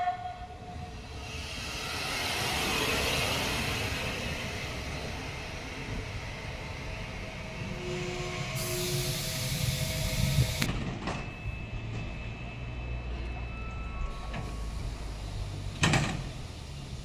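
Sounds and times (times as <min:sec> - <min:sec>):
locomotive humming: 0:00.0 - 0:17.0
air hiss: 0:08.6 - 0:10.7.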